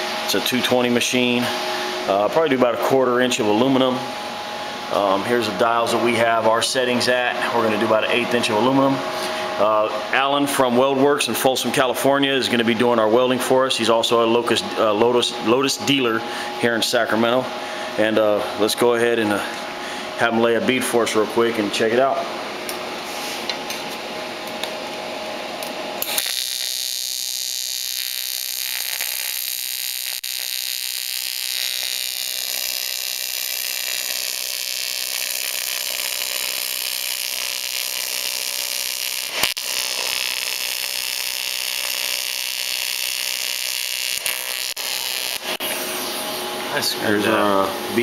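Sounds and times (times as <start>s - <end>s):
welding arc buzzing: 23.7s - 48.0s.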